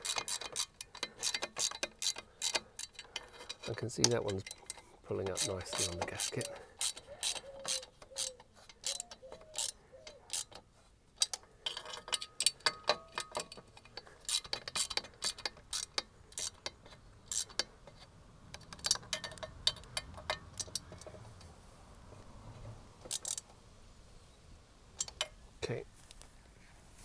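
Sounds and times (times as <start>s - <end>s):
ratchet wrench clicking: 0.0s - 10.6s, 11.2s - 17.7s, 18.5s - 21.1s, 23.1s - 23.5s.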